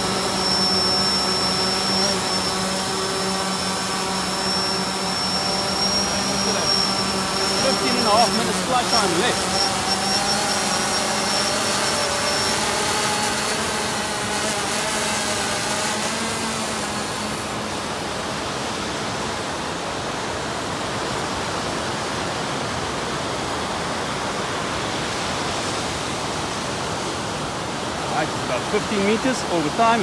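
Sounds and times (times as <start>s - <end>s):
surf rushing: 0.0s - 19.2s
drone propellers humming: 0.0s - 20.9s, 26.7s - 30.0s
wind: 0.0s - 30.0s.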